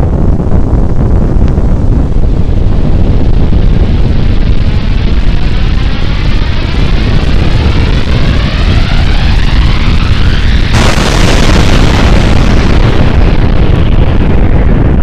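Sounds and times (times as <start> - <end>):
deep explosion rumble: 0.0 - 15.0
explosion blast: 0.0 - 15.0.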